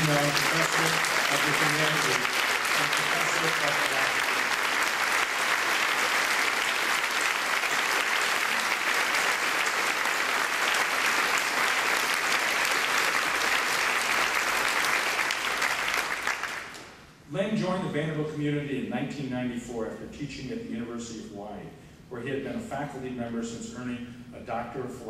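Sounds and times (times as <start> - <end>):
audience applause: 0.0 - 16.9.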